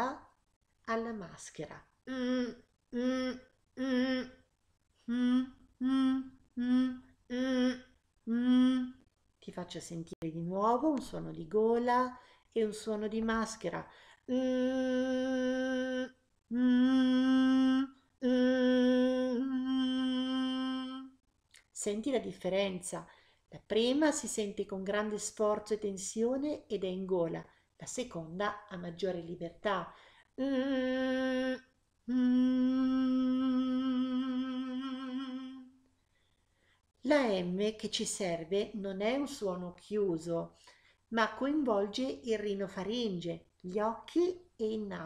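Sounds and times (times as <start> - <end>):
person humming: 2.1 - 4.4, 5.0 - 9.0, 14.3 - 21.2, 30.4 - 35.8
breaths: 12.2 - 12.5, 13.8 - 14.3, 23.0 - 23.5, 29.9 - 30.4, 36.0 - 36.9, 40.5 - 41.1.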